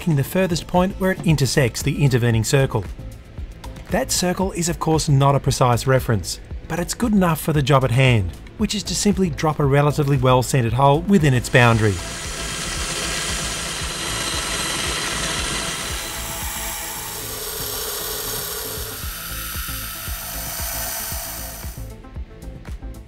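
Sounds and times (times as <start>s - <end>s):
drill cutting through brass: 11.2s - 21.9s.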